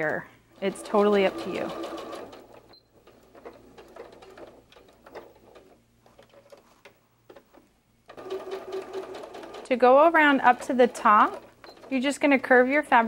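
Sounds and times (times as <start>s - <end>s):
electric sewing machine stitching: 0.6s - 2.6s, 8.1s - 12.4s.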